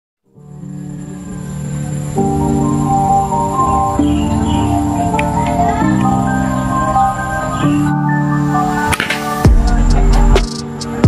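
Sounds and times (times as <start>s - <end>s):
sustained chords background music: 0.3s - 11.0s.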